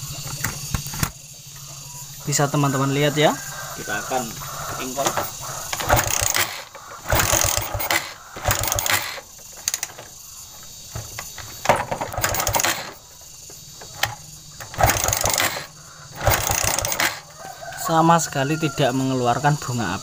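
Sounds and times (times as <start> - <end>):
motorcycle kick-start clatter: 0.0 - 1.2, 4.4 - 17.4.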